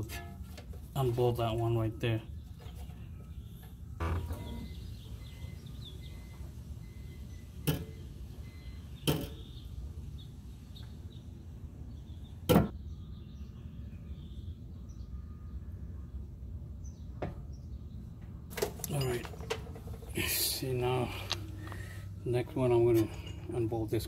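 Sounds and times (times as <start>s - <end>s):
faint bird chirps: 1.8s - 11.3s, 11.9s - 18.1s.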